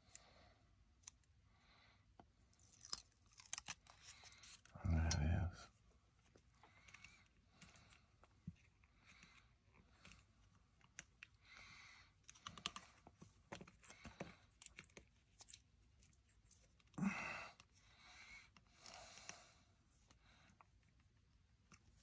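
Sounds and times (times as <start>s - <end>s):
tape rustling: 2.4s - 4.7s.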